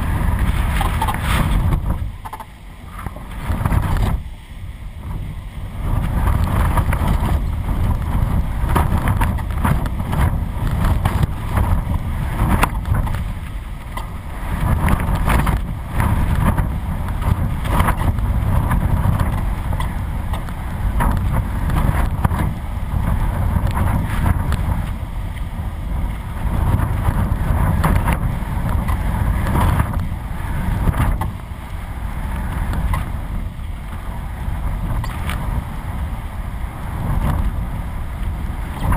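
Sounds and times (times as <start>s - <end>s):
gusty wind buffeting camera: 0.0s - 38.9s.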